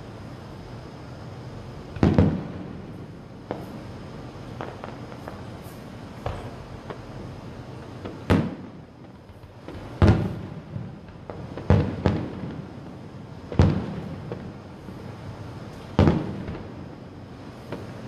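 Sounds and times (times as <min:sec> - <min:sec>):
firework shells bursting: 0:03.4 - 0:12.8.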